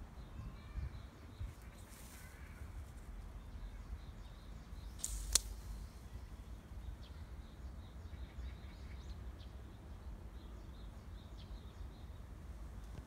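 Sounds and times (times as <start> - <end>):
sharp click: 5.0 - 5.6.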